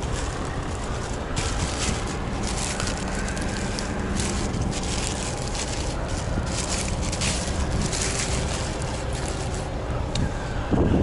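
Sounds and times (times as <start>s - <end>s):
plastic packaging crinkling: 0.0s - 9.9s
steady low rumble: 0.0s - 11.0s.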